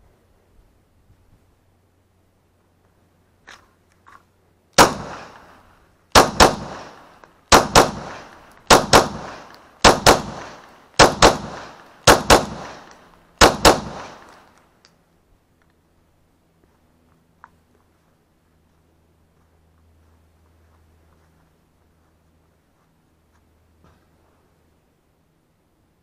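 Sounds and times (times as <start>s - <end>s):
pistol shots echoing: 4.8s - 5.5s, 6.1s - 14.4s.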